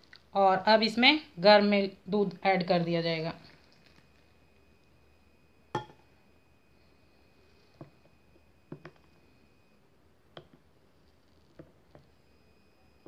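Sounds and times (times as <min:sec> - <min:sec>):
metal clinking against ceramic mug: 0:05.8 - 0:06.0.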